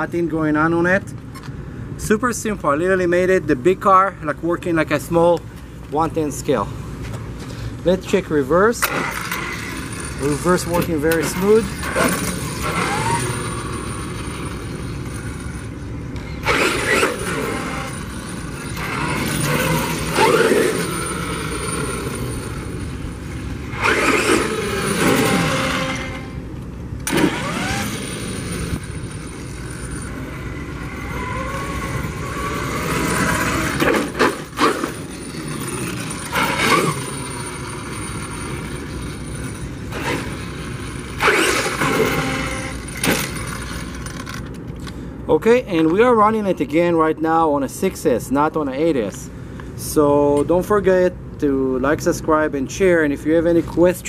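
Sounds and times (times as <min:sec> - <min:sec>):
electric motor whining: 0:09.0 - 0:44.0.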